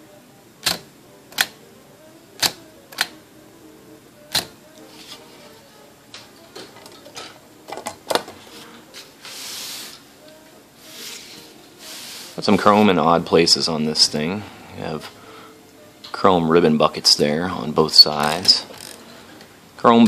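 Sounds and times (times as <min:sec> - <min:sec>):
typewriter key strikes: 0:00.6 - 0:00.8.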